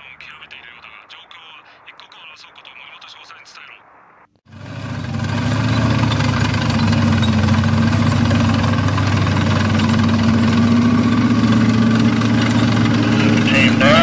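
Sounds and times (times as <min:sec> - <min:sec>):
heavy engine idling: 0:04.5 - 0:14.0.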